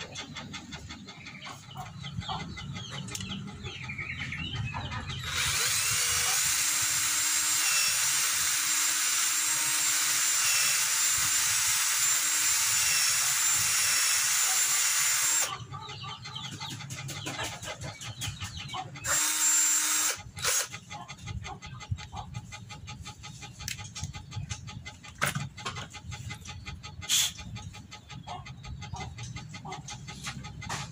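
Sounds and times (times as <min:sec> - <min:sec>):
cordless drill whining: 0:05.2 - 0:15.5, 0:19.0 - 0:20.7.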